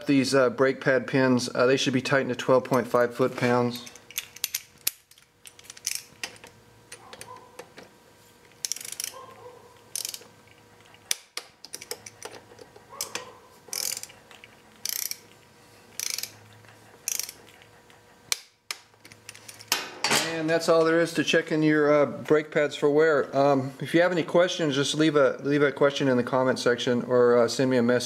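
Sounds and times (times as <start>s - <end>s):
ratchet wrench clicking: 3.9s - 6.4s, 8.6s - 9.2s, 9.9s - 10.3s, 13.0s - 14.2s, 14.8s - 15.3s, 16.0s - 16.4s, 17.0s - 17.4s.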